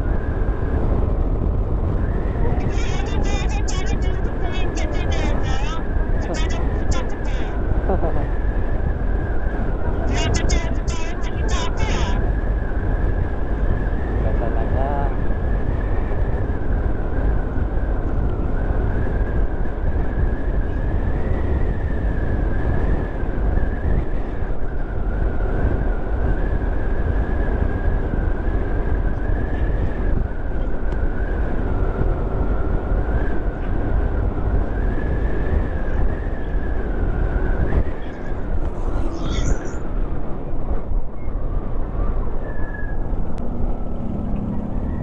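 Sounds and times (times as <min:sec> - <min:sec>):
wind rumble on microphone: 0:00.0 - 0:45.0
thin high whine: 0:37.4 - 0:41.4.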